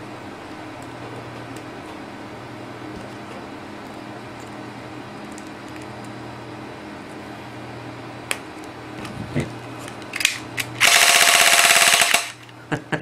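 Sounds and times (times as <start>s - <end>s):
airsoft gun motor full auto: 10.2s - 12.4s.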